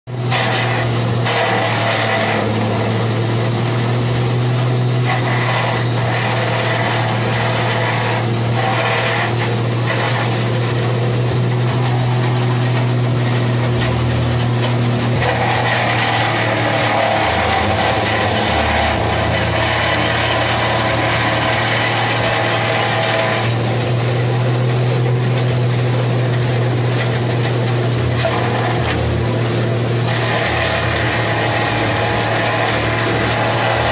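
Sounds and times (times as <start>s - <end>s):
grass chopper engine running: 0.1s - 33.9s.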